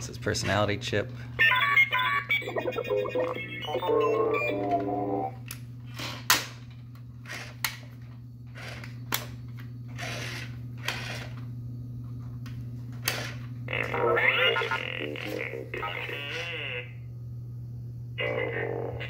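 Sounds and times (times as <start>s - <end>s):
low steady hum: 0.0s - 19.0s
toy robot electronic beeps: 1.6s - 5.3s, 13.8s - 15.2s.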